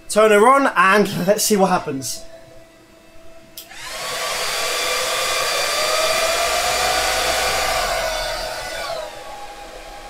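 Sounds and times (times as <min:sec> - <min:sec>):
cooling fan rushing air: 0:03.0 - 0:10.0.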